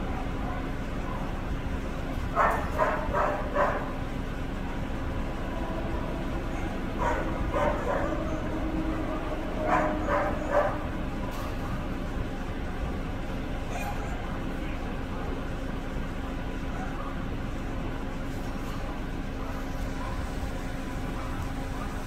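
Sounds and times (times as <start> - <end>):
steady background hum: 0.0 - 22.0
dog barking: 2.4 - 4.0, 6.5 - 8.5, 9.6 - 10.9, 13.7 - 14.1, 19.4 - 22.0.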